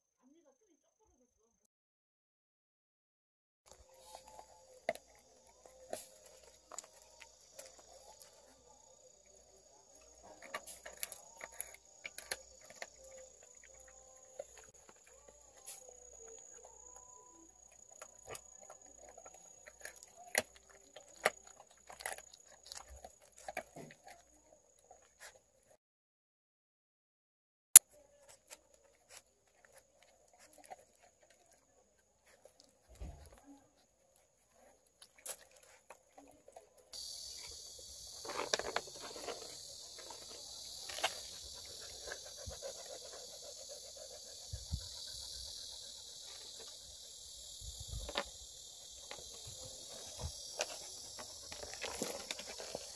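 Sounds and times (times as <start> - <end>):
insects chirring: 3.7 - 25.3, 34.5 - 52.9
puppies panting and grunting: 3.7 - 25.8, 28.4 - 52.9
paws scuffling on wood: 49.2 - 52.9.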